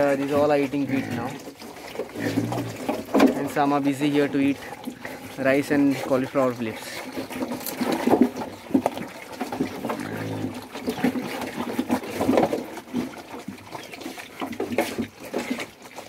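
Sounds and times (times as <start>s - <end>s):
piglets chewing and slurping: 0.0s - 16.0s
piglet grunt: 0.8s - 1.4s, 2.2s - 2.8s, 9.9s - 11.2s.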